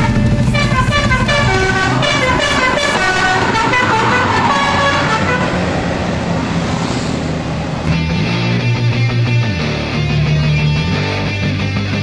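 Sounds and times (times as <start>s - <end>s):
melodic bus horn tune: 0.0s - 6.4s
bus engine hum: 0.0s - 11.8s.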